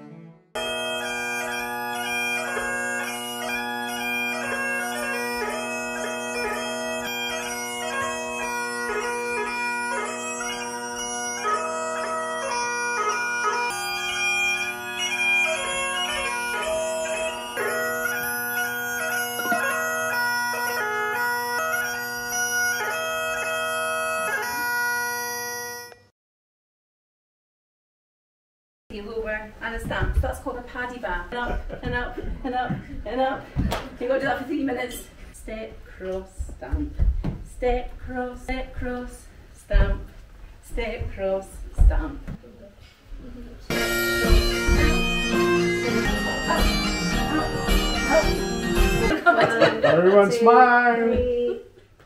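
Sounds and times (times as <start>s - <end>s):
bagpipe playing a dance tune: 0.0s - 26.1s, 43.7s - 49.2s.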